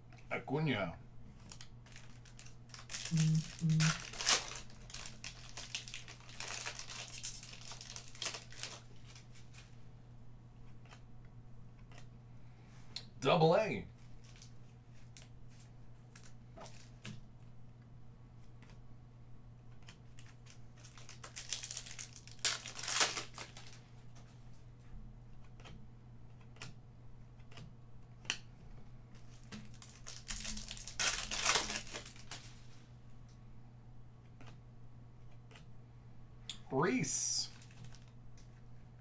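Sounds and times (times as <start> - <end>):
foil pack tearing: 1.5 - 9.2, 20.2 - 23.8, 29.6 - 32.6, 37.5 - 38.1
low hum: 3.0 - 4.2.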